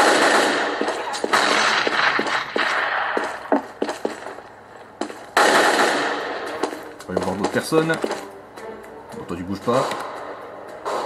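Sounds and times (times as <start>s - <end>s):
video game gunfire: 0.0s - 4.3s, 5.4s - 6.6s.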